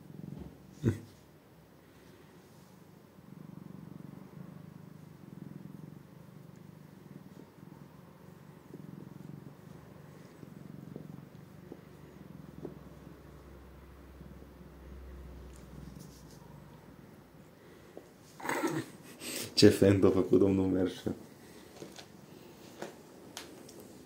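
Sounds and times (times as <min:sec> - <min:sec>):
cat purring: 0:00.0 - 0:24.0.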